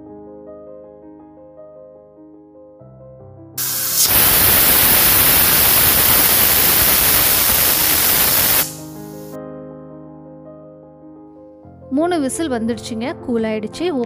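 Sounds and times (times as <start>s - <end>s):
soft piano music: 0.0s - 3.6s, 8.9s - 14.0s
pressure cooker steam hiss: 3.6s - 9.4s.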